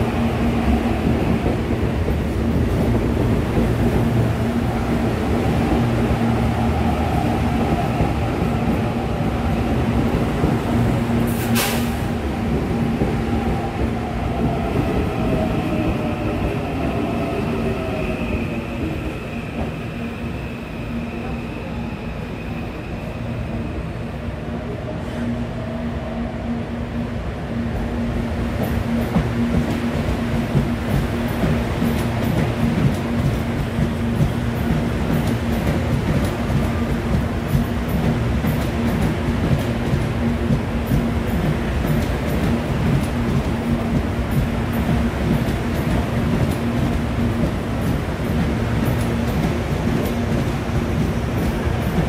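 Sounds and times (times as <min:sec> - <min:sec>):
electric train rumbling past: 0:00.0 - 0:52.0.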